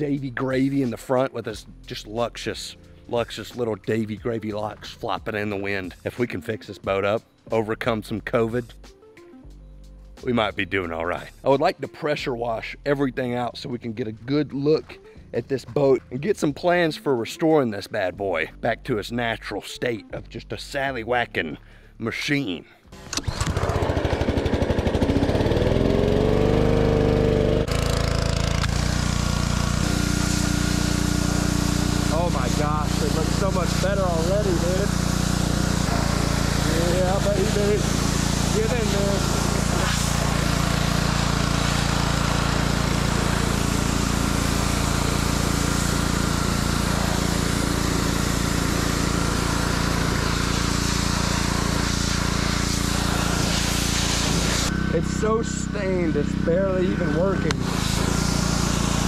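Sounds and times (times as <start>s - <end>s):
small gas engine running: 22.9s - 59.0s
pressure washer motor drone: 23.0s - 59.0s
water jet hissing: 27.6s - 59.0s.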